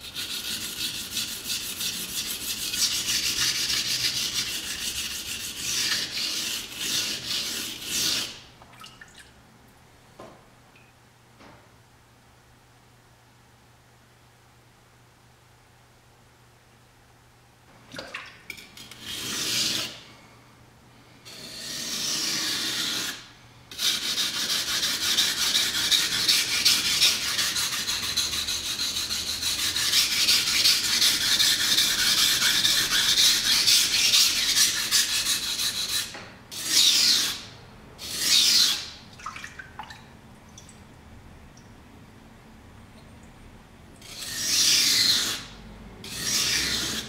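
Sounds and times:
knife scraping on whetstone: 0:00.0 - 0:08.4, 0:18.8 - 0:20.0, 0:21.3 - 0:37.4, 0:44.0 - 0:45.5, 0:46.1 - 0:47.0.

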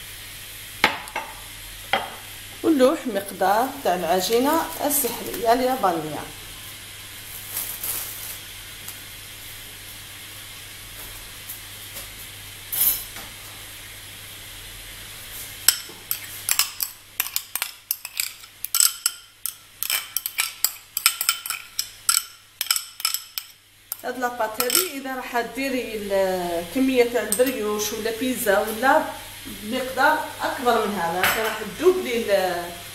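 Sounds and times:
faint steady hiss: 0:00.0 - 0:32.9
metal spoon clinking on bowl: 0:15.7 - 0:24.0, 0:24.6 - 0:25.0.

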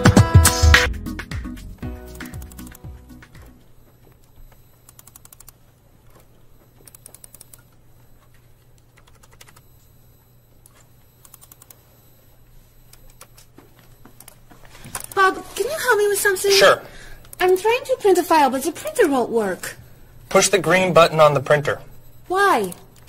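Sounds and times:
typing on computer keyboard: 0:04.8 - 0:05.6, 0:06.8 - 0:07.6, 0:08.8 - 0:09.6, 0:11.2 - 0:11.8.

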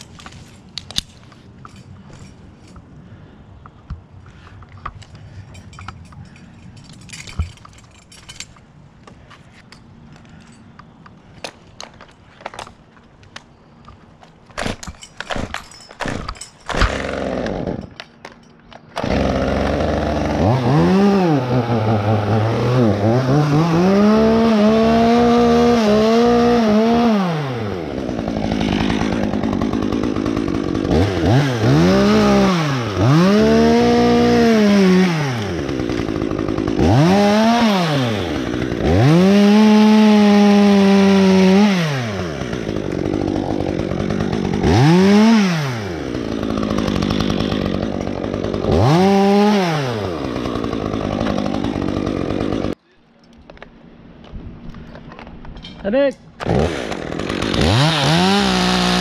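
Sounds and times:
chainsaw revving and idling: 0:16.0 - 0:18.0, 0:19.0 - 0:52.8, 0:56.4 - 0:59.0.

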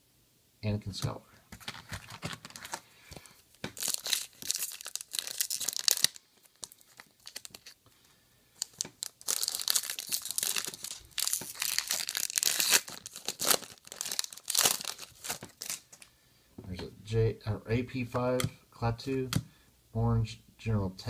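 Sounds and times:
foil wrapper tearing and crinkling: 0:01.5 - 0:07.8, 0:08.6 - 0:16.1.

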